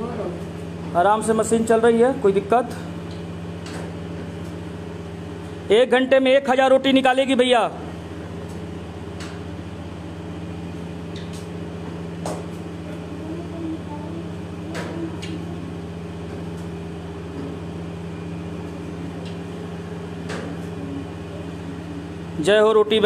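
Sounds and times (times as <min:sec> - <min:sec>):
machine motor humming: 0:00.0 - 0:23.0.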